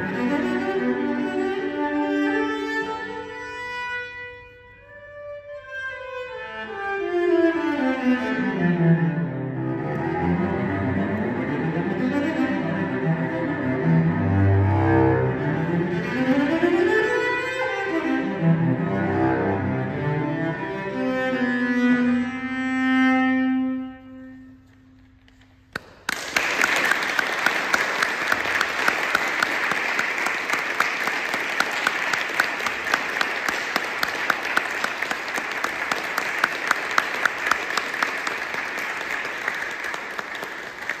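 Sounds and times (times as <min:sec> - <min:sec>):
cello bowed note: 0:00.0 - 0:24.9
audience applauding: 0:25.7 - 0:41.0.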